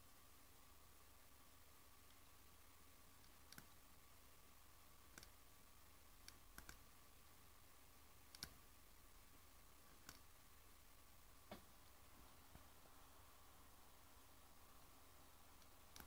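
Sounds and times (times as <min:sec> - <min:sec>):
faint steady hum: 0:00.0 - 0:16.0
computer mouse clicks: 0:03.2 - 0:03.8, 0:05.1 - 0:05.4, 0:06.2 - 0:06.9, 0:08.2 - 0:08.6, 0:09.8 - 0:10.3, 0:15.6 - 0:16.0.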